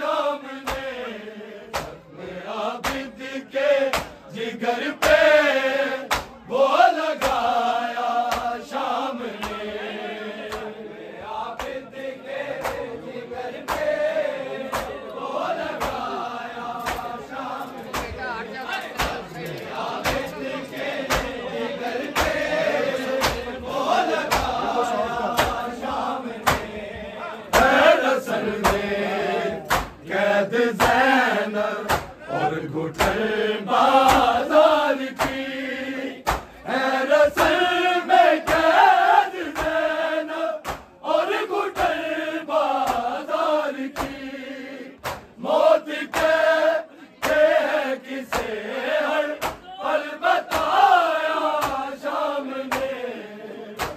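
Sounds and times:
men chanting in unison: 0.0 - 53.9
hands slapping chest: 0.6 - 1.0, 1.7 - 2.0, 2.8 - 3.2, 3.8 - 4.2, 5.0 - 5.4, 6.1 - 6.4, 7.2 - 7.6, 8.3 - 8.6, 10.4 - 10.8, 11.5 - 11.8, 12.5 - 12.9, 13.6 - 14.0, 14.6 - 15.1, 15.7 - 16.1, 16.8 - 18.2, 19.0 - 19.3, 20.0 - 20.3, 21.0 - 21.4, 22.0 - 22.5, 23.2 - 23.6, 24.2 - 24.6, 25.3 - 26.8, 27.5 - 27.9, 28.6 - 29.0, 29.6 - 30.0, 30.8 - 31.1, 31.8 - 32.2, 32.9 - 33.2, 34.0 - 34.4, 35.2 - 35.5, 36.2 - 36.6, 38.4 - 38.8, 39.4 - 39.9, 40.6 - 40.9, 42.8 - 43.2, 43.9 - 44.2, 45.0 - 45.4, 46.1 - 46.5, 47.2 - 47.6, 48.3 - 48.6, 49.4 - 49.6, 50.4 - 50.8, 51.5 - 51.9, 52.7 - 53.0.

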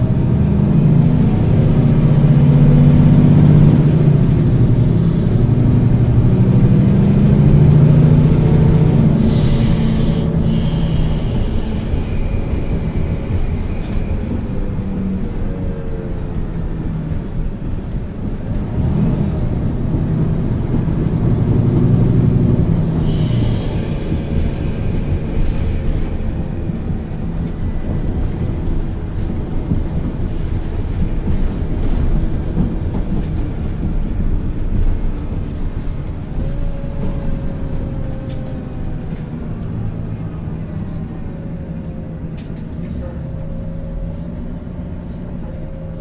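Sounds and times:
bus diesel engine pulling: 0.0 - 46.0.

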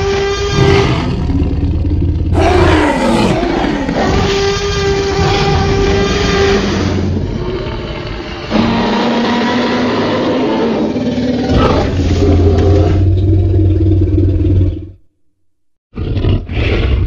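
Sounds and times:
dinosaur roar and growl: 0.0 - 15.0, 16.0 - 17.0.

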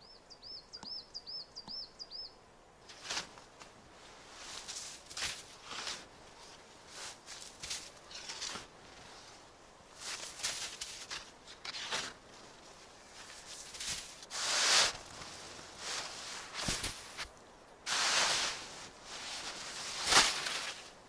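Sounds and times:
snow shovel scraping packed snow: 2.9 - 3.3, 4.2 - 9.3, 10.0 - 17.3, 17.9 - 21.0.

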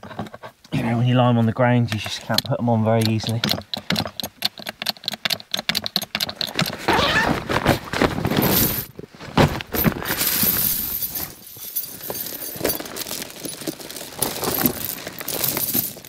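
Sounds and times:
snow chains rattling: 2.5 - 16.0
sharp chain clank: 10.0 - 13.4.

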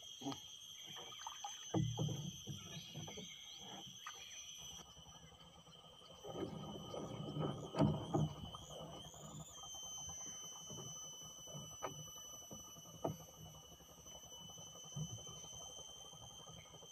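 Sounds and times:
high-pitched whine: 0.0 - 16.9
rustling and knocks in wooden boat: 0.2 - 4.8, 6.2 - 15.7.

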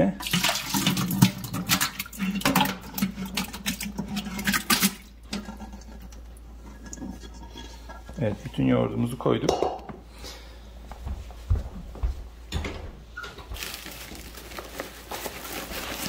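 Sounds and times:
yogurt slopping and splatting: 0.2 - 8.3.

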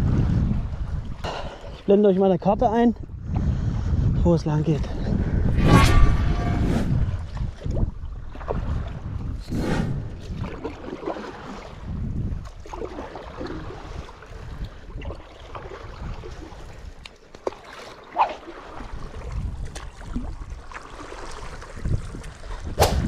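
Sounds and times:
wind noise on microphone: 0.0 - 1.6, 2.4 - 17.1, 18.2 - 23.0
water splashing and lapping: 5.4 - 23.0
paddle strokes: 9.4 - 22.7.

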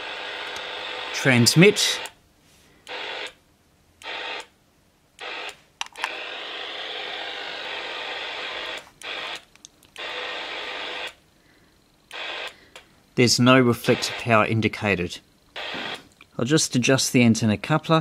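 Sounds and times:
radio static hiss from speaker: 0.0 - 2.2, 13.2 - 16.1.

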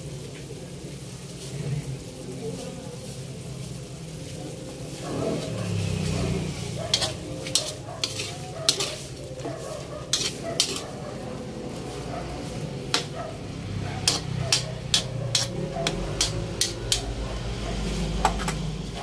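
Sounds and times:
light sizzle: 0.0 - 19.0
metal spatula scraping a wok: 4.9 - 19.0.

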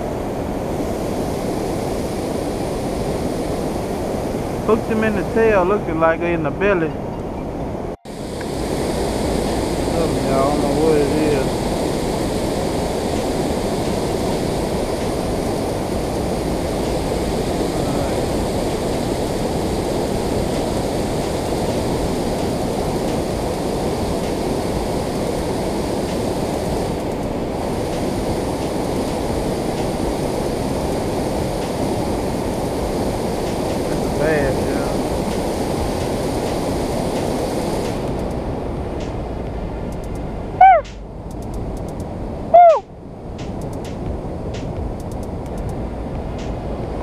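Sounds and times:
water rushing over dam spillway: 8.1 - 38.2.

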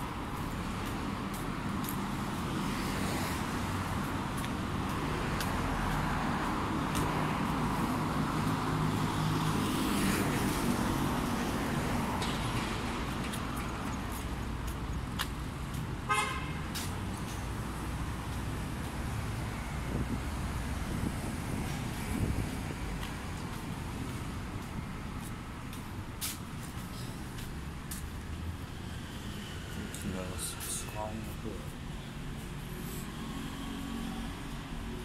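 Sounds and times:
passing cars: 0.0 - 35.0
short vehicle horn toot: 16.1 - 16.6.

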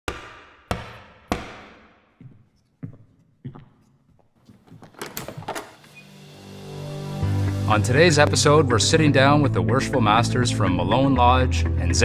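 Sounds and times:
gavel knocking on wood: 0.1 - 1.8.

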